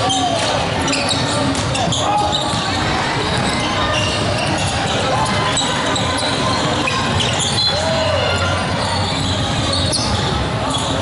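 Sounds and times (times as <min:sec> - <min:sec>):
sneaker squeaks: 0:00.0 - 0:11.0
spectators chattering: 0:00.0 - 0:11.0
basketball bouncing on court: 0:01.1 - 0:07.7.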